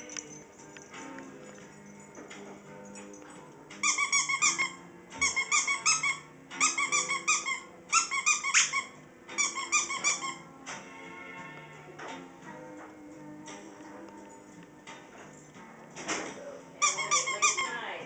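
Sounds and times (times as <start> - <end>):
squeaky dog toy squeaking: 3.8 - 10.5, 16.8 - 17.9.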